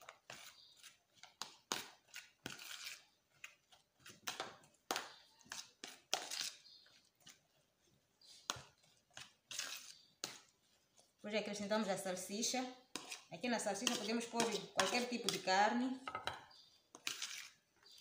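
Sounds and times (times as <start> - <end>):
fork scraping plastic tub: 0.0 - 4.2, 8.2 - 11.6, 12.8 - 15.8, 16.6 - 18.0.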